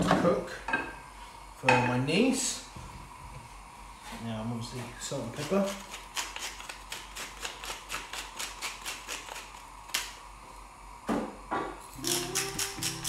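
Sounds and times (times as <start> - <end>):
guitar music: 12.0 - 13.0.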